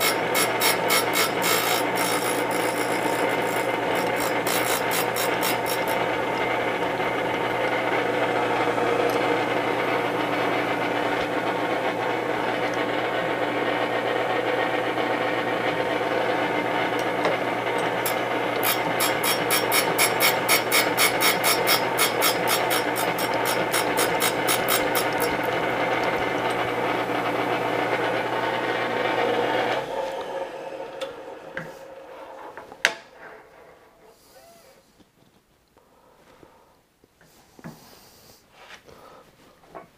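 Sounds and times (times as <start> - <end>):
grinding wheel ticking grind: 0.0 - 13.9, 14.6 - 31.7
surface grinder motor hum: 0.0 - 34.4.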